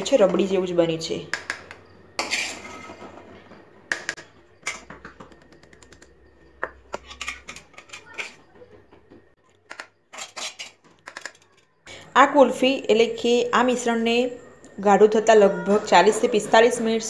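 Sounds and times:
spoon clinking against metal moulds: 0:06.6 - 0:08.5.

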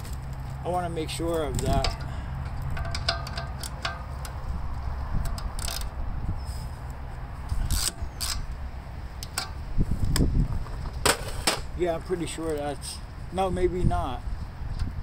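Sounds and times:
steady low rumble: 0:00.0 - 0:15.0
wrench metal clicks: 0:01.5 - 0:04.4, 0:05.2 - 0:06.0, 0:07.6 - 0:08.5.

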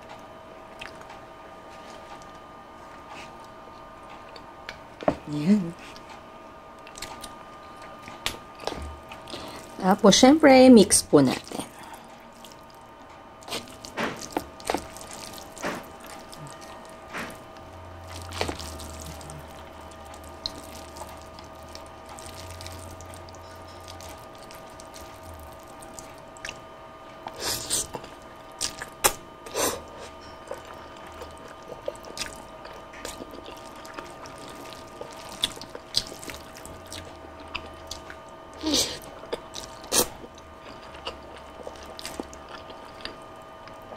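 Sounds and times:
faint steady hum: 0:00.0 - 0:43.9
wet sticky noodle squelches: 0:06.9 - 0:09.9, 0:11.3 - 0:26.6, 0:27.2 - 0:29.2, 0:29.9 - 0:43.2.

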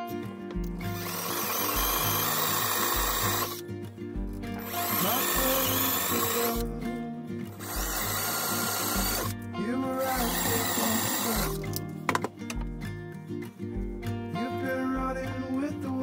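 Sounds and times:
power drill boring into wood: 0:00.8 - 0:03.6, 0:04.6 - 0:06.7, 0:07.6 - 0:09.3, 0:10.0 - 0:11.6
background music with bass beat: 0:03.0 - 0:08.3, 0:08.9 - 0:10.7.

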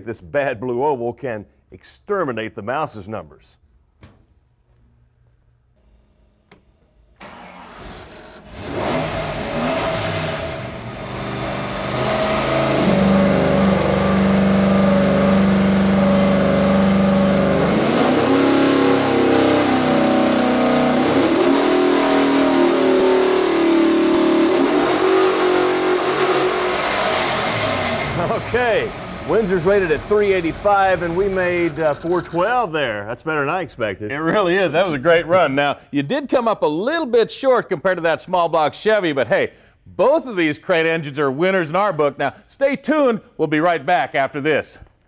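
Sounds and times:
engine starting and running hard: 0:07.2 - 0:32.6.

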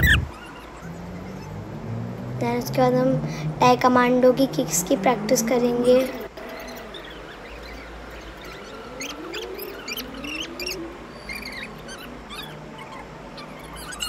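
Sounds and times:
animal squeaks and chirps: 0:00.0 - 0:01.6, 0:06.1 - 0:14.0
animal whines: 0:00.0 - 0:01.6, 0:06.0 - 0:14.0.

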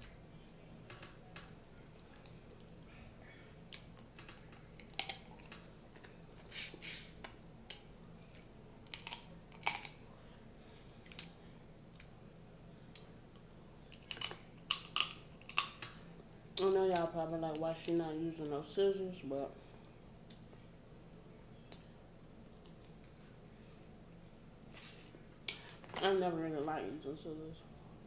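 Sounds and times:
crab shells cracking and crunching: 0:03.8 - 0:06.2, 0:08.8 - 0:10.0, 0:11.0 - 0:11.4, 0:13.8 - 0:16.0.

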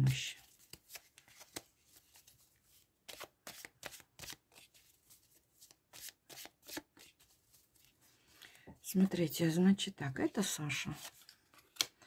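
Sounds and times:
cards being shuffled: 0:00.4 - 0:08.0, 0:10.9 - 0:12.0.

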